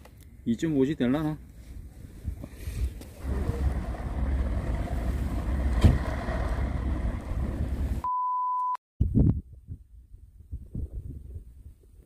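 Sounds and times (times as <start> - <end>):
wind buffeting microphone: 1.7 - 8.0, 9.0 - 12.0.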